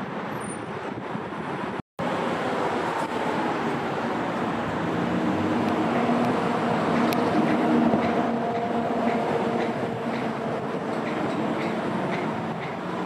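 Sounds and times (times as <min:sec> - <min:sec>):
train passing: 0:00.0 - 0:13.0.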